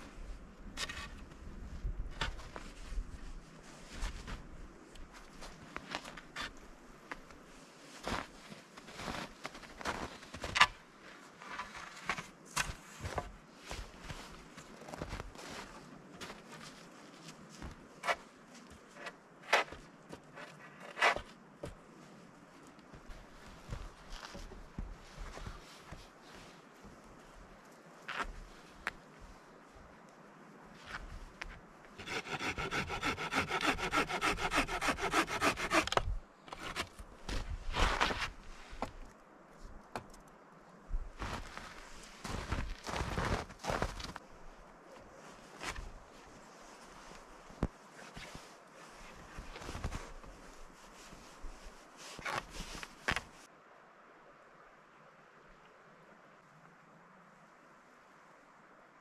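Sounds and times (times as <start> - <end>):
footsteps crunching in snow: 2.1 - 10.6, 11.2 - 29.2, 36.6 - 39.1, 41.1 - 44.3, 44.9 - 53.5
hand saw cutting wood: 32.0 - 36.9.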